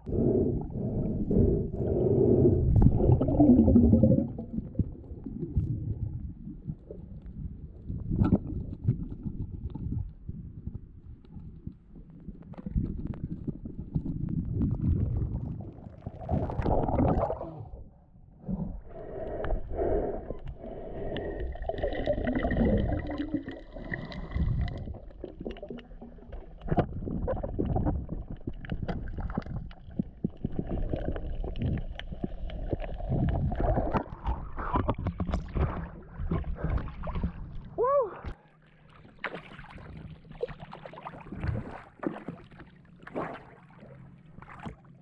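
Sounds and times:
muffled underwater gurgling: 0.0s - 45.0s
water splashing: 39.0s - 44.8s.

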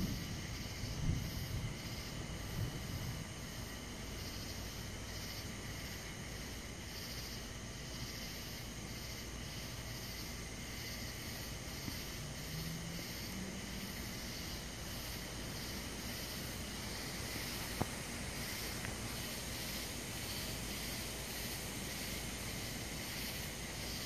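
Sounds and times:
low steady rumble: 0.0s - 6.9s
insects chirping: 0.0s - 24.0s.

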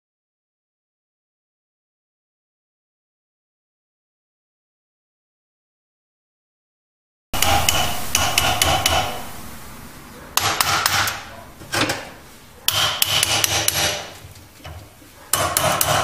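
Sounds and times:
hammer striking metal: 7.4s - 14.2s, 15.3s - 16.0s.

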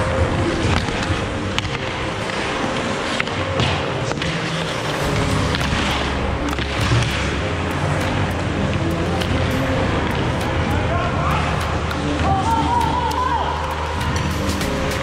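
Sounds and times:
skate blades scraping on ice: 0.0s - 7.4s
hockey sticks and puck clicking: 0.0s - 15.0s.

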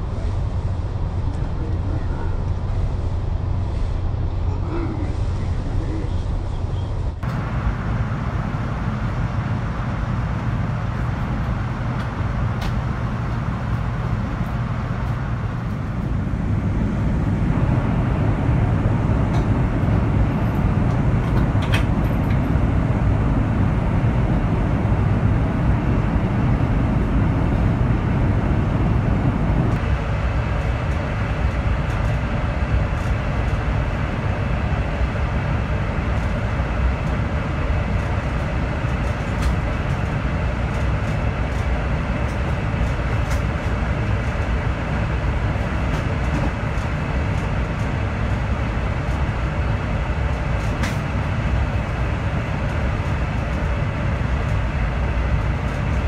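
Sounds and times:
train rumbling at speed: 0.0s - 56.0s.

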